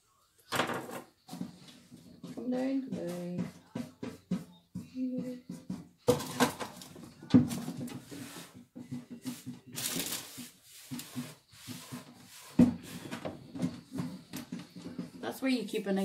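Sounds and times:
kitchen items knocking on counter: 0:00.5 - 0:01.4, 0:05.5 - 0:08.0.

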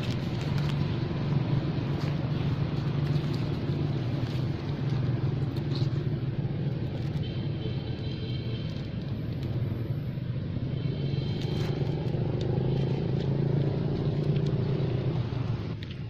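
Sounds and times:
engine running: 0:00.0 - 0:08.6, 0:11.0 - 0:16.0.

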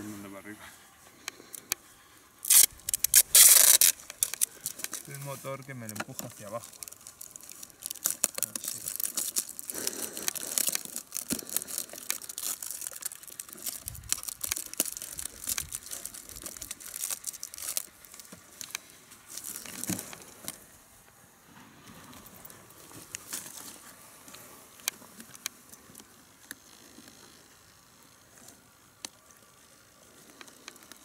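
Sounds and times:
adhesive tape ripping: 0:02.4 - 0:05.2, 0:05.8 - 0:20.6
cardboard crinkling: 0:02.4 - 0:20.7, 0:21.8 - 0:26.1.

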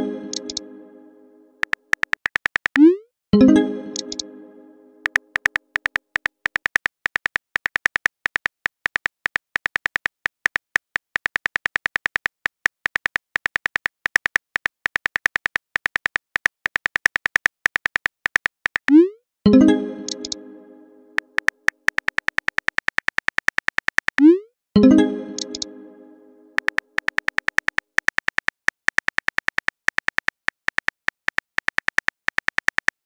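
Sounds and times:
phone keyboard clicks: 0:00.3 - 0:00.6, 0:01.6 - 0:02.9, 0:04.0 - 0:04.2, 0:05.0 - 0:19.0, 0:21.2 - 0:24.2, 0:25.4 - 0:25.7, 0:26.6 - 0:33.0.

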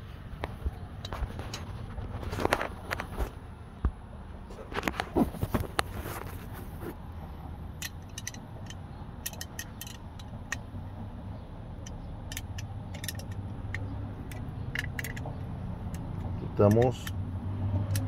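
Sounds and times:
metallic wrench clicks: 0:07.8 - 0:10.7, 0:11.8 - 0:17.2, 0:17.8 - 0:18.0.

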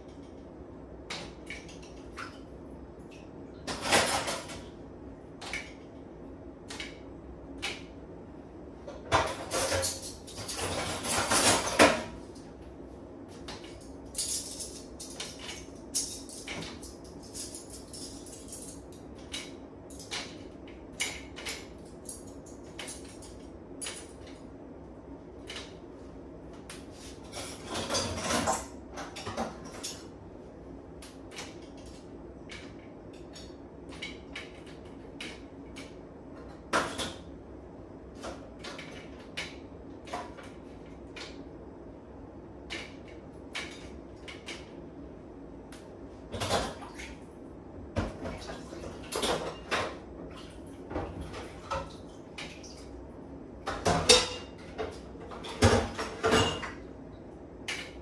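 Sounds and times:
dishes and cutlery clinking: 0:09.1 - 0:12.1, 0:53.7 - 0:56.8.

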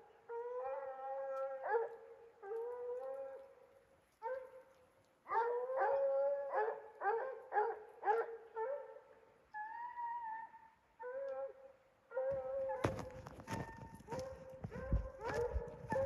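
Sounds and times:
hounds chop barking: 0:12.3 - 0:16.0.

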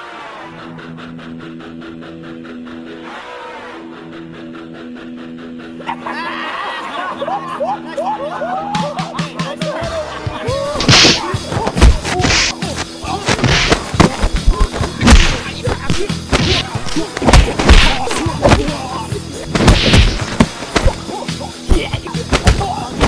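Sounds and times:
background music: 0:00.0 - 0:23.0
punch and kick hits with swishes: 0:10.8 - 0:23.0.

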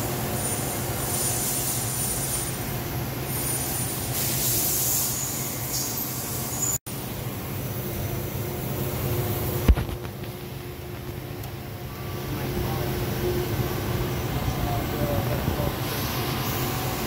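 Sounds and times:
lathe running hum: 0:10.5 - 0:17.0.

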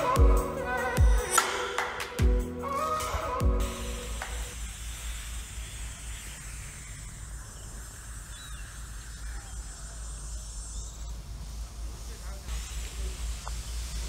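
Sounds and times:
faint high hiss: 0:00.0 - 0:14.0
faint bird chirps: 0:05.6 - 0:11.4.

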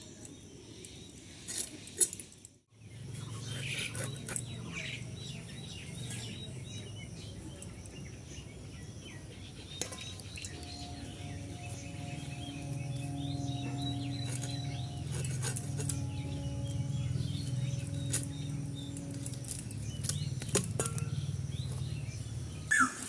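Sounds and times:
small birds chirping: 0:00.0 - 0:23.0
low hum: 0:10.2 - 0:22.7
soft background music: 0:10.4 - 0:22.7.

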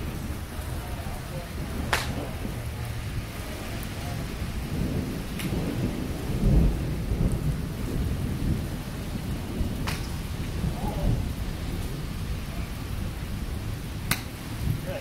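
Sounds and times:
wind and rain on microphone: 0:00.0 - 0:15.0
golf club striking ball: 0:01.9 - 0:02.2, 0:09.8 - 0:10.4, 0:14.0 - 0:14.5.

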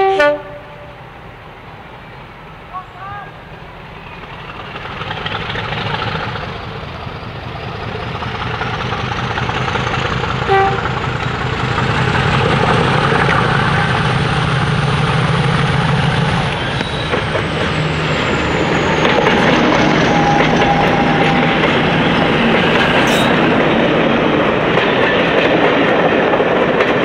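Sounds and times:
locomotive horn toot: 0:00.0 - 0:01.0, 0:10.4 - 0:11.0, 0:19.0 - 0:22.0
diesel locomotive engine working hard: 0:00.0 - 0:27.0.

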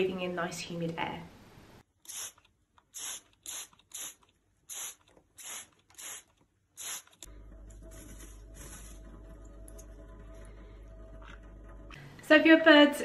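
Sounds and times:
bird feathers rustling: 0:07.7 - 0:09.4.

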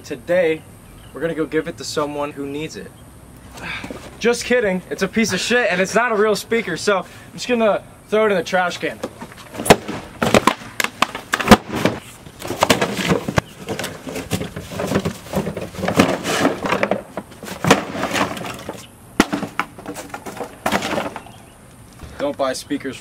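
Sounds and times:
speaker boxes smashing on concrete: 0:09.1 - 0:21.3.

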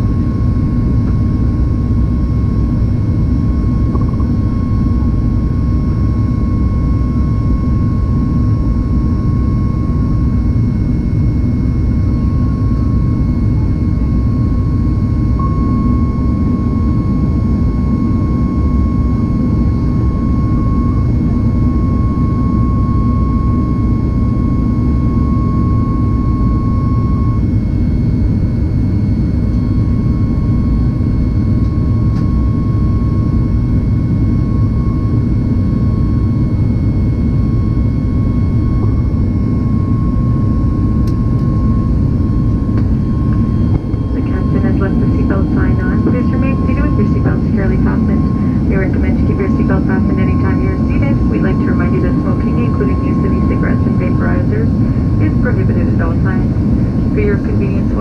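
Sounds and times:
jet engine and airflow noise: 0:00.0 - 0:58.0
thin high whine: 0:14.5 - 0:28.6, 0:30.3 - 0:58.0.

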